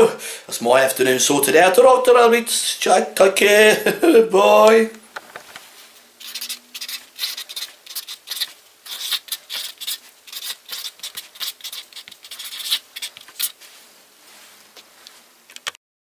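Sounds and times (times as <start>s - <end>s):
marker pen scratching on board: 6.2s - 13.6s.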